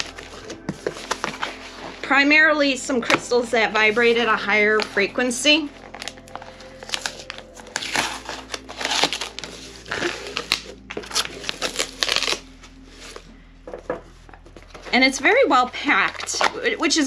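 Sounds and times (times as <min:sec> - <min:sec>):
cardboard rustling: 0:00.0 - 0:02.4, 0:03.0 - 0:15.0
scissors cutting packing tape: 0:05.8 - 0:12.4.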